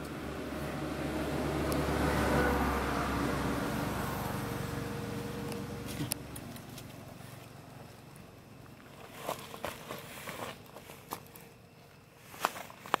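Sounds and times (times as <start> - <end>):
motor vehicle passing: 0.0 - 8.5.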